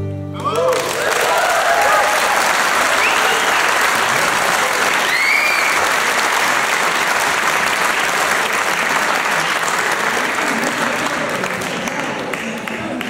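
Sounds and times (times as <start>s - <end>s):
audience applauding: 0.4s - 13.0s
high-pitched crowd calls: 0.5s - 6.2s.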